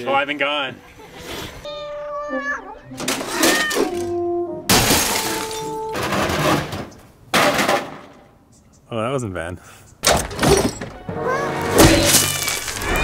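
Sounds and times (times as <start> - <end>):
monitor crashing on concrete: 4.7 - 8.1, 11.8 - 13.0.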